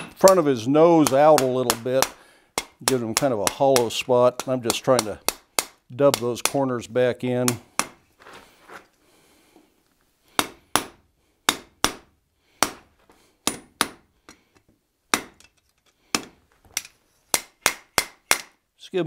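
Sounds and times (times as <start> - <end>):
hammer striking hot steel on anvil: 13.4 - 14.0.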